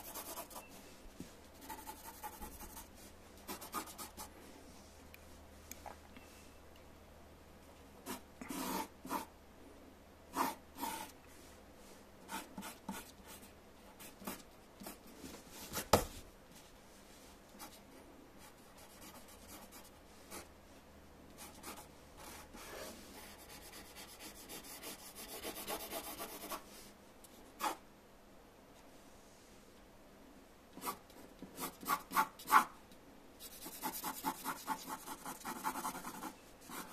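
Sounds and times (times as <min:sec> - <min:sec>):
pencil scratching on paper: 0:00.0 - 0:00.7, 0:01.6 - 0:02.9, 0:03.5 - 0:04.3, 0:08.0 - 0:09.3, 0:10.3 - 0:11.1, 0:18.4 - 0:20.5, 0:21.4 - 0:26.6, 0:30.8 - 0:32.7, 0:33.4 - 0:36.9.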